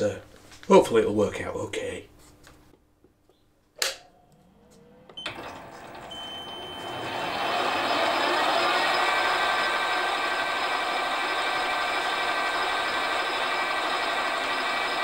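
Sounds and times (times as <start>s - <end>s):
sharp switch click: 3.8s - 4.1s
metal lathe motor whine: 4.3s - 15.0s.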